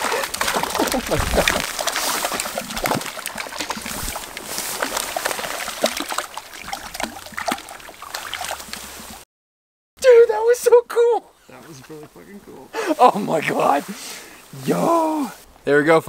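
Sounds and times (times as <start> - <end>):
fish splashing in water: 0.0 - 9.2
grass rustling: 0.0 - 9.2, 11.4 - 15.6.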